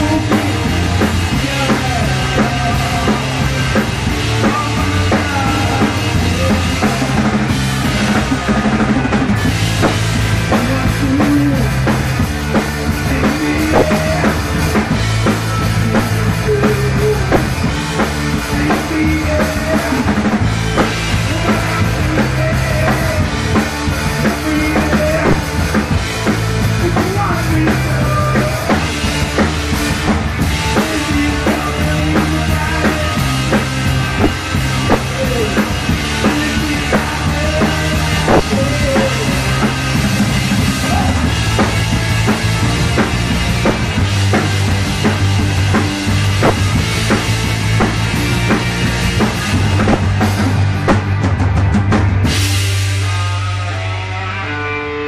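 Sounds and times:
live rock band playing: 0.0s - 55.0s
low bass notes: 0.0s - 55.0s
bass drum and snare hits: 7.7s - 10.8s, 13.6s - 14.3s, 16.0s - 17.8s, 25.0s - 25.8s, 33.5s - 35.6s, 38.2s - 52.5s.

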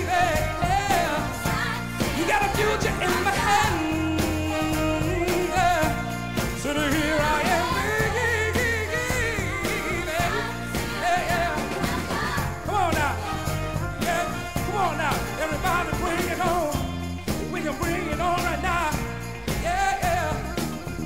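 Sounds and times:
man singing: 0.0s - 1.4s, 2.0s - 11.9s, 12.6s - 21.0s
band with steady drum beat: 0.0s - 21.0s.

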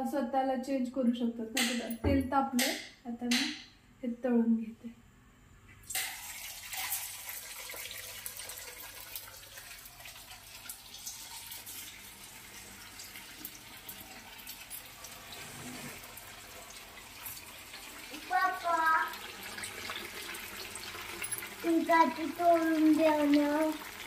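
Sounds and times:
food deep-frying in hot oil: 5.8s - 24.0s.

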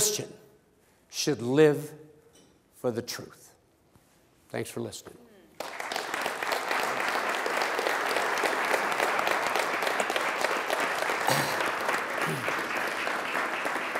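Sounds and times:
audience applauding: 5.6s - 13.9s.

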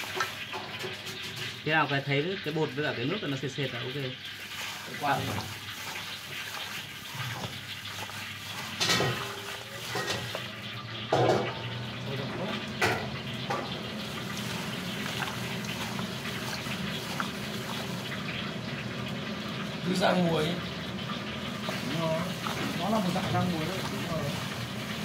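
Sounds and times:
wet squelching of coated meat: 3.0s - 11.0s, 13.4s - 25.0s.

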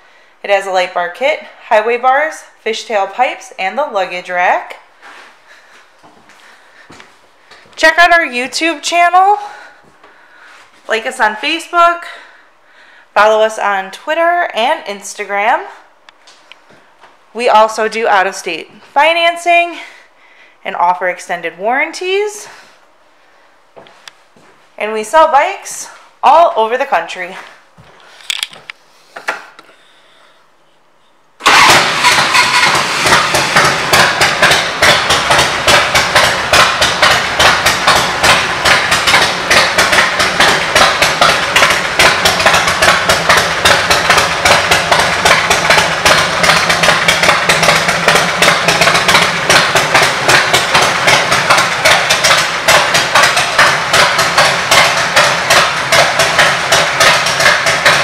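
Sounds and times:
motorcycle engine idling: 31.4s - 58.0s.

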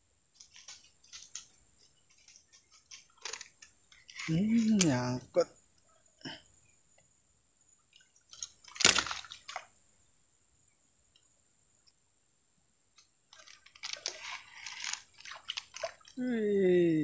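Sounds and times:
water splashing: 15.1s - 16.4s.

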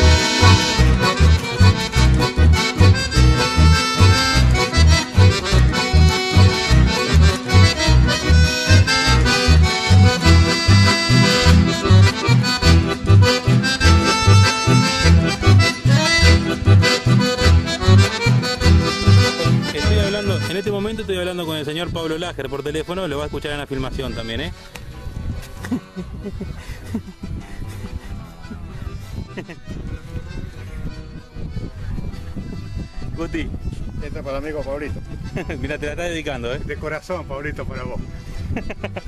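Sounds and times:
steady bass beat: 0.0s - 22.0s
accordion music: 0.0s - 39.0s.

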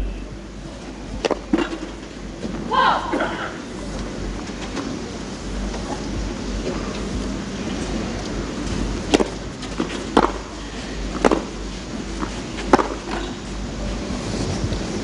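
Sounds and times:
low arena hum: 0.0s - 15.0s
rackets hitting tennis ball: 9.1s - 10.4s, 11.1s - 11.5s, 12.2s - 13.4s.

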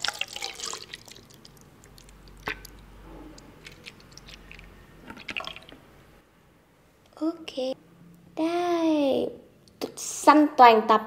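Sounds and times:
drink pouring into glass jar: 0.0s - 2.8s, 3.5s - 5.8s.

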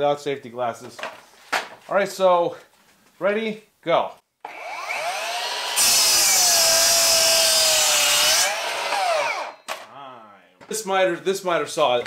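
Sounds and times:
miter saw cutting wood: 4.4s - 9.6s.

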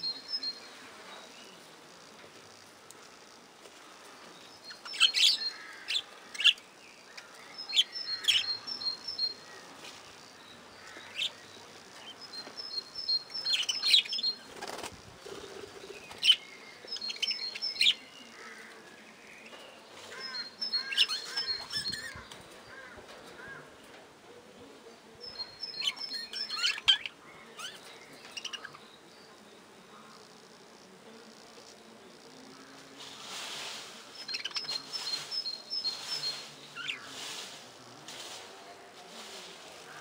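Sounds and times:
wing flaps: 14.5s - 15.8s.

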